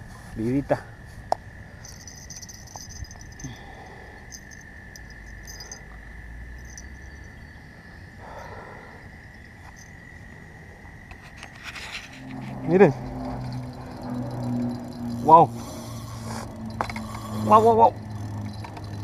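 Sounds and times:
insects chirping: 0.0s - 19.0s
steady high drone: 1.6s - 19.0s
brief rustle: 11.1s - 12.6s.

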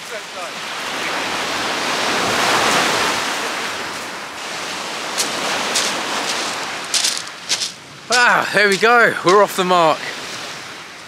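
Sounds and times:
waves washing up shingle beach: 0.0s - 11.0s
short crunches: 5.2s - 8.2s.

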